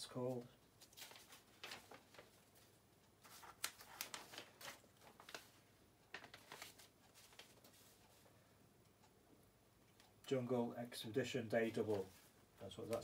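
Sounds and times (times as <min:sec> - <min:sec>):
paper sheets rustling: 0:00.3 - 0:08.3, 0:11.8 - 0:13.0.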